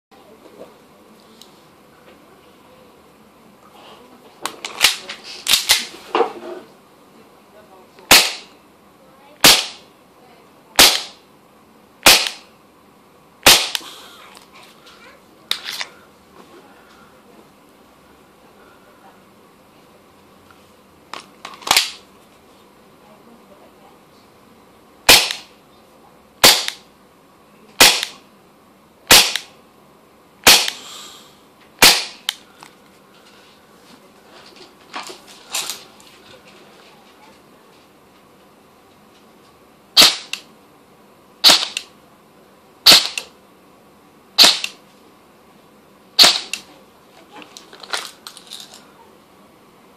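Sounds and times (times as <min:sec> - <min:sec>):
air gun shots: 0:08.1 - 0:08.5, 0:09.4 - 0:09.9, 0:10.8 - 0:11.2, 0:12.0 - 0:12.5, 0:13.4 - 0:14.0, 0:21.7 - 0:22.0, 0:25.1 - 0:25.5, 0:26.4 - 0:26.8, 0:27.8 - 0:28.2, 0:29.1 - 0:29.6, 0:30.4 - 0:31.0, 0:31.8 - 0:32.4, 0:40.0 - 0:40.5, 0:41.4 - 0:41.9, 0:42.8 - 0:43.3, 0:44.4 - 0:44.8, 0:46.2 - 0:46.7.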